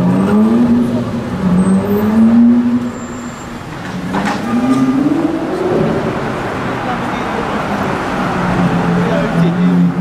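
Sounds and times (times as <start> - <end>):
car engine accelerating: 0.0 - 3.0.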